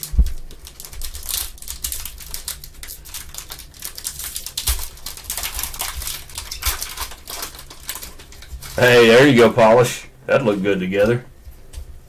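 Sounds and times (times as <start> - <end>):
foil wrapper tearing and crinkling: 0.0 - 9.6.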